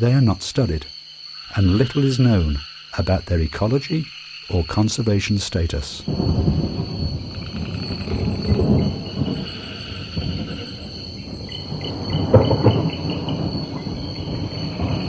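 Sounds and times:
insects buzzing: 0:00.0 - 0:15.0
rumbling thunder: 0:06.0 - 0:15.0.

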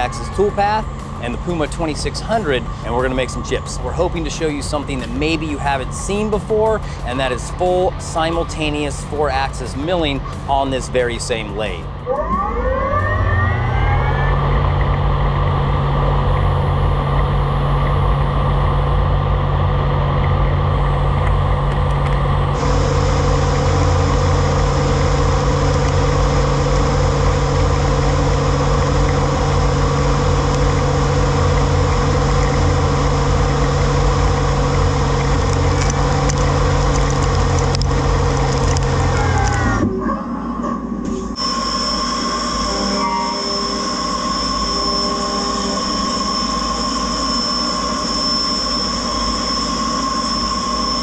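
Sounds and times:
lathe machine hum and whine: 0:00.0 - 0:51.0.

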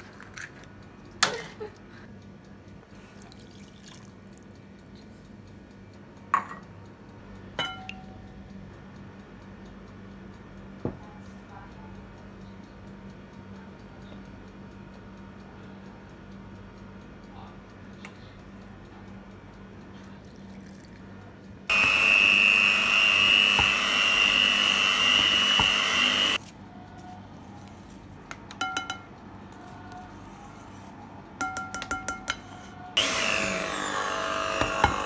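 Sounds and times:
hand mixer whining: 0:21.7 - 0:26.4, 0:33.0 - 0:35.0
beaters clinking on glass bowl: 0:28.5 - 0:29.1.

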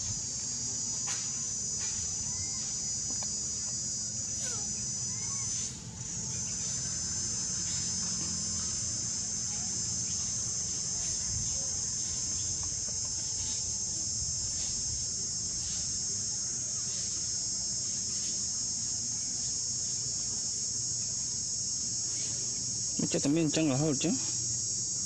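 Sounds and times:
high-pitched insect chorus: 0:00.0 - 0:25.0.

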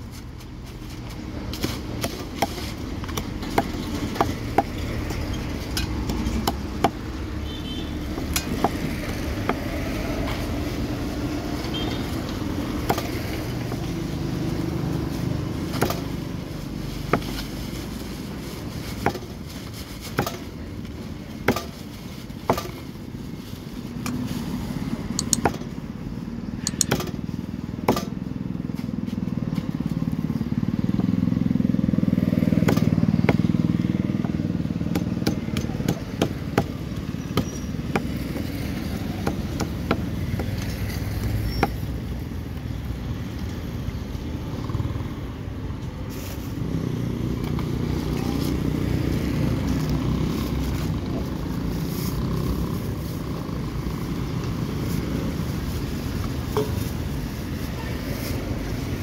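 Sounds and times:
low rumble of motor traffic: 0:00.0 - 0:59.0
cleaver chopping fish on wood: 0:12.8 - 0:13.2, 0:25.3 - 0:25.6, 0:26.7 - 0:27.2, 0:27.8 - 0:28.2, 0:32.6 - 0:33.5, 0:34.8 - 0:38.5, 0:39.1 - 0:40.5.

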